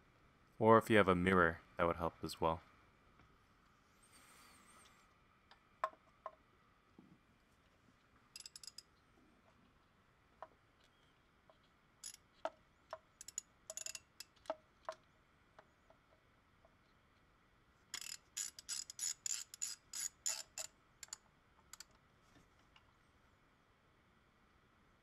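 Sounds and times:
ratchet wrench clicking: 8.4s - 8.9s, 12.0s - 12.2s, 13.2s - 14.5s, 17.9s - 21.9s.

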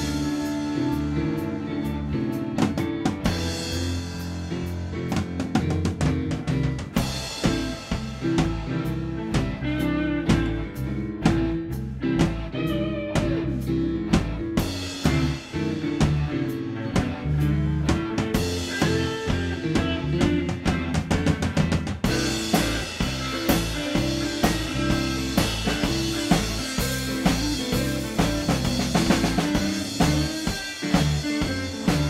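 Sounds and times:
band jamming: 0.0s - 32.0s
busy drumming: 0.0s - 32.0s.

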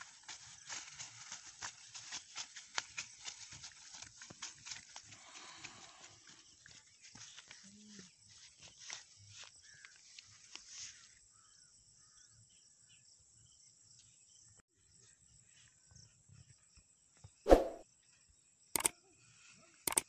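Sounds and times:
flip-flop footsteps on grass: 17.5s - 17.8s.

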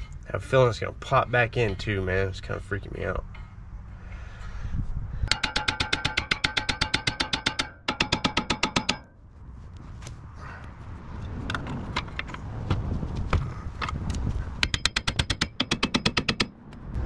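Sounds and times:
hammer striking metal: 5.3s - 9.2s, 14.6s - 16.5s.

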